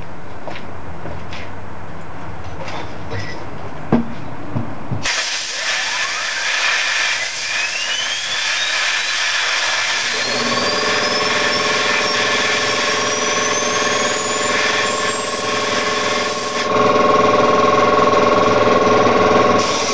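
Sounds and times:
compressed air hissing: 5.0s - 16.7s, 19.6s - 19.9s
spinning gear whine: 5.5s - 19.9s.

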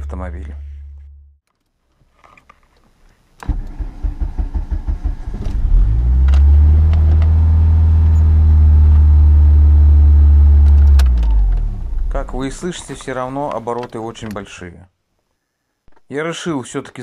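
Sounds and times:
starter cranking engine: 3.4s - 5.6s.

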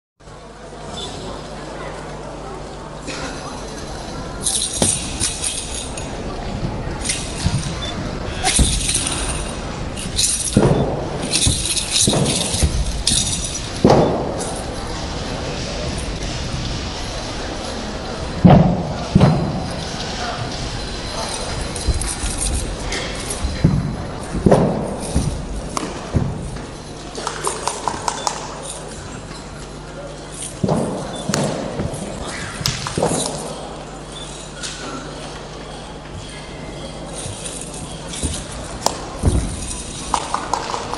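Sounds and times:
murmur of voices: 0.2s - 40.9s
metallic jingling rattle: 3.3s - 40.9s
dull thuds: 37.2s - 40.3s.

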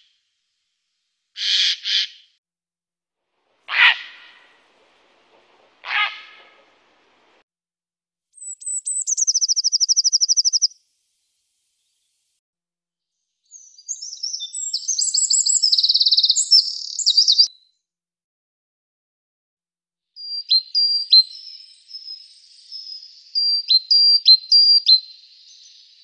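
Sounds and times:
great tit singing: 8.4s - 10.7s, 13.5s - 17.5s
wren singing trills: 8.4s - 10.7s, 13.5s - 17.5s, 20.2s - 26.0s.

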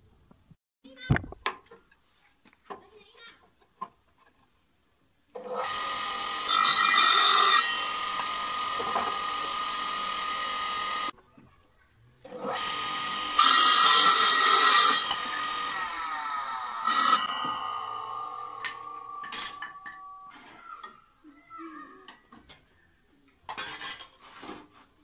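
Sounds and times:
table saw cutting wood: 5.4s - 11.1s, 12.3s - 20.4s.

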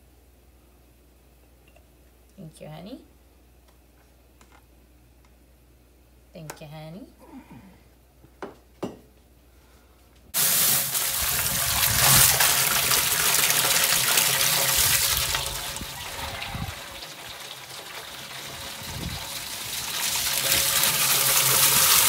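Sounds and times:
water spraying from a hose: 10.4s - 22.0s.

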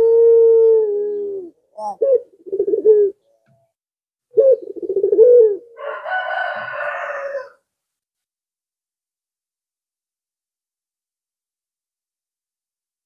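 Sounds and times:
dove cooing: 0.0s - 3.4s, 4.3s - 7.6s.

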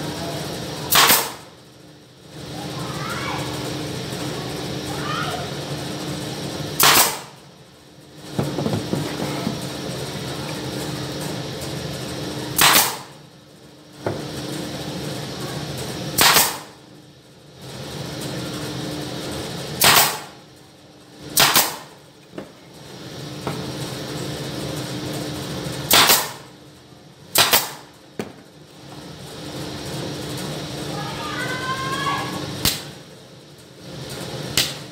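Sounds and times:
steady background hum: 0.0s - 34.9s
nail gun firing into wood: 0.9s - 1.4s, 6.8s - 7.3s, 12.6s - 13.1s, 16.2s - 16.7s, 19.8s - 20.3s, 21.4s - 21.9s, 25.9s - 26.4s, 27.4s - 27.8s.

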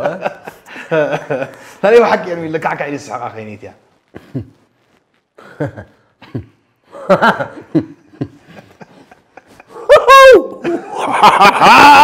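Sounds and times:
people laughing: 0.0s - 1.6s, 6.9s - 12.0s.

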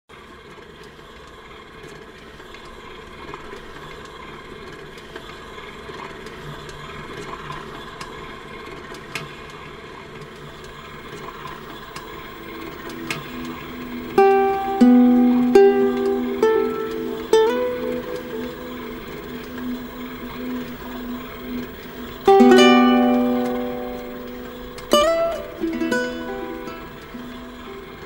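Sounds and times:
background hiss: 10.7s - 28.0s
plucked-string music: 11.9s - 28.0s.

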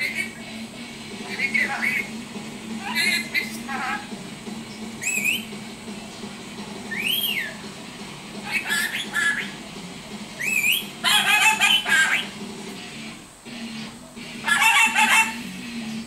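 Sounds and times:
parrot harsh chattering calls: 0.0s - 0.4s, 1.2s - 4.2s, 5.0s - 5.5s, 8.4s - 9.6s, 10.4s - 12.4s, 14.4s - 15.5s
parrot whistles: 1.3s - 2.1s, 5.0s - 5.5s, 6.9s - 7.6s, 8.4s - 9.6s, 10.4s - 12.3s, 14.4s - 15.4s.

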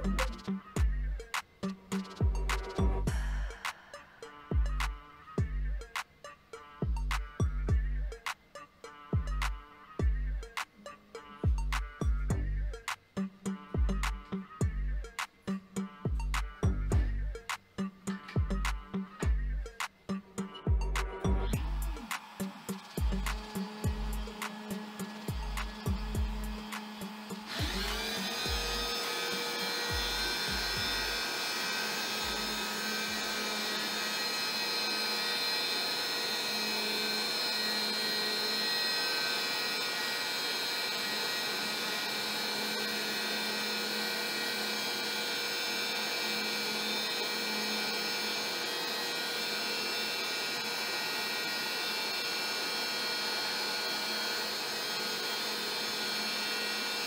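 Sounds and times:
shop vacuum running: 0.0s - 0.5s, 21.5s - 57.0s
router cutting wood: 0.0s - 5.2s, 21.1s - 57.0s.

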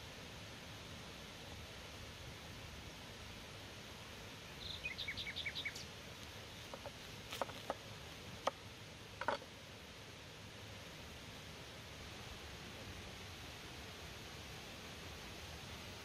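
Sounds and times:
small bird chirping: 4.5s - 7.7s.

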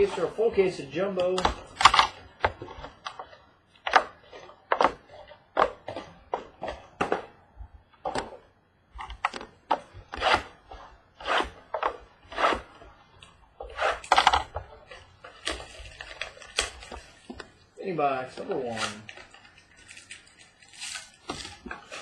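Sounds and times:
cardboard scraping and rubbing: 0.0s - 7.3s, 9.0s - 17.6s, 18.4s - 22.0s.

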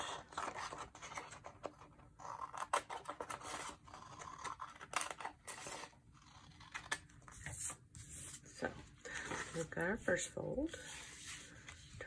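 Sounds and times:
scissors cutting paper: 0.0s - 7.7s.

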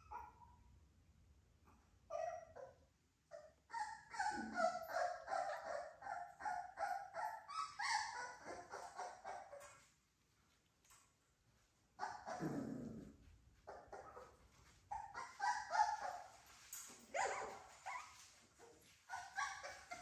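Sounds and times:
puppies yipping: 3.3s - 9.9s, 12.0s - 12.6s, 13.6s - 20.0s.

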